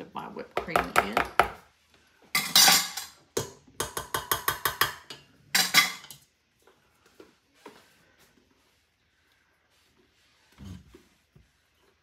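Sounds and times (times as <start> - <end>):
utensil tapping metal bowl: 3.4 - 5.8.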